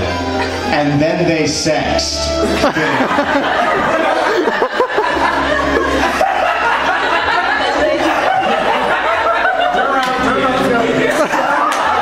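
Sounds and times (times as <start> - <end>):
audience laughing: 2.3 - 12.0.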